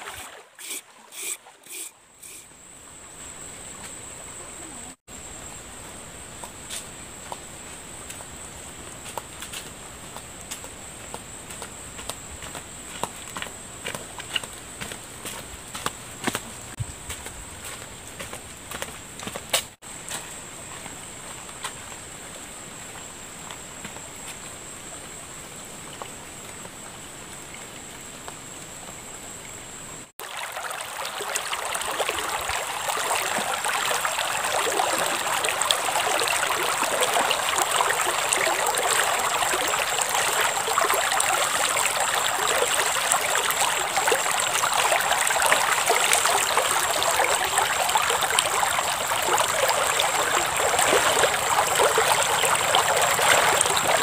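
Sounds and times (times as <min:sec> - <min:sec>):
river water flowing: 0:00.0 - 0:02.4, 0:30.2 - 0:54.0.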